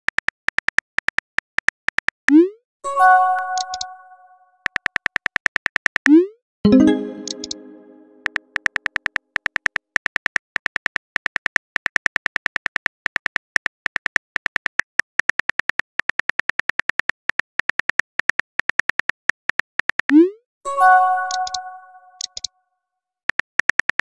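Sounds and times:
chime: 2.9s - 4.4s, 6.7s - 8.2s, 20.7s - 22.2s
keyboard clicks: 3.2s - 13.4s, 21.2s - 22.5s.

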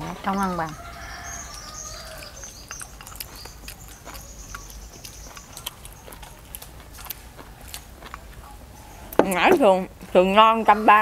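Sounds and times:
faint high chirping: 0.3s - 6.2s.

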